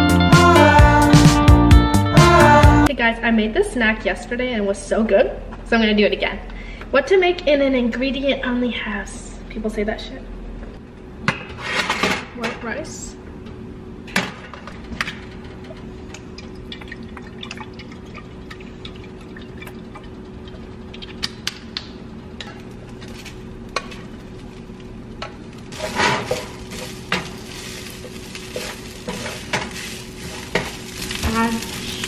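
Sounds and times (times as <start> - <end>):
steady low hum: 2.8 - 32.0
rice sizzling in frying pan: 25.7 - 32.0
wooden spatula stirring: 25.8 - 32.0.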